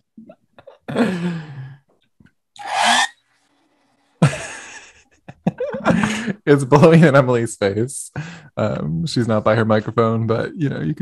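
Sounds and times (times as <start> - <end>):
people laughing: 4.2 - 7.1.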